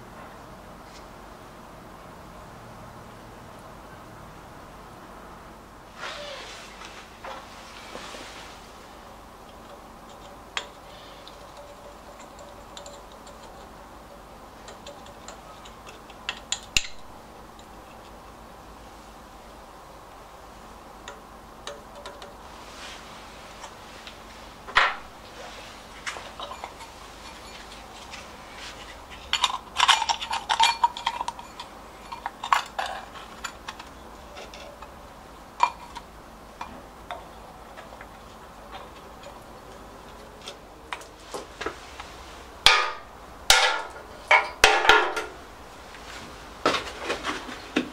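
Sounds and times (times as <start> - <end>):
metallic clicks of small parts: 9.4 - 18.4, 21.0 - 22.4
small metal parts clinking: 9.5 - 18.4, 26.0 - 35.0.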